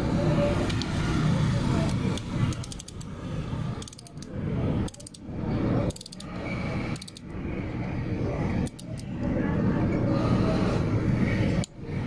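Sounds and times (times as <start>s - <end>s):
ratcheting torque wrench clicking: 2.1s - 3.1s, 3.8s - 5.2s, 5.9s - 6.3s, 6.9s - 7.3s, 8.6s - 9.0s.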